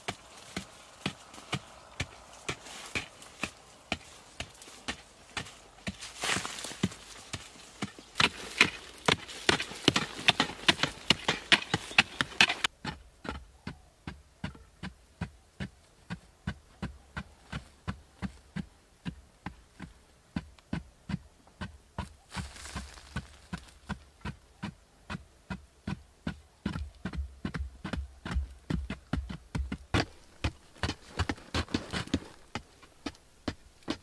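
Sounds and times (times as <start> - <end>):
soil and stones spilling: 0.0 - 12.7, 22.3 - 23.7
digging tools chopping earth: 0.0 - 19.2, 19.8 - 34.0.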